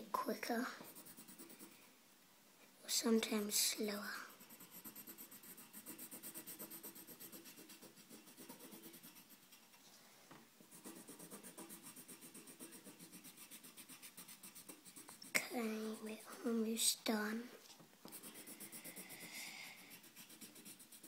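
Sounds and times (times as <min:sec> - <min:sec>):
pencil scribbling on paper: 0:00.8 - 0:01.8, 0:04.2 - 0:09.6, 0:10.7 - 0:17.0, 0:18.1 - 0:21.0.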